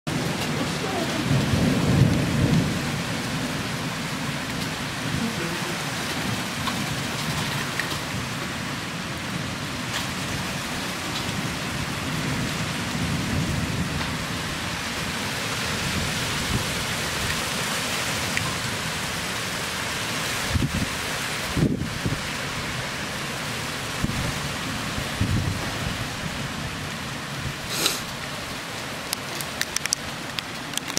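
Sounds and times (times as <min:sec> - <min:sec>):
thunder rumbles: 0:00.1 - 0:17.4, 0:23.5 - 0:28.2
rain and hail hissing: 0:00.1 - 0:30.9.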